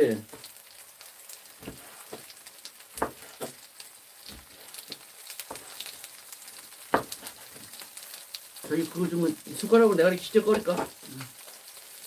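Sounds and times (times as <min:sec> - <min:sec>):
onions sizzling in oil: 0:00.0 - 0:12.0
knife knocking on cutting board: 0:03.0 - 0:03.6, 0:06.9 - 0:07.2.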